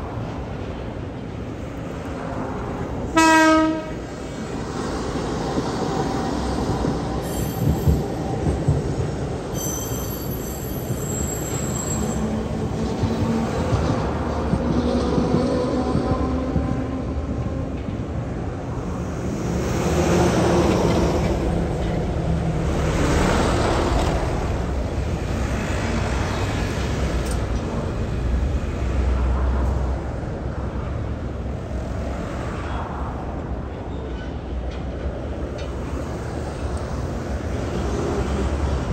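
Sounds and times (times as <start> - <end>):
vehicles passing: 12.2 - 38.9.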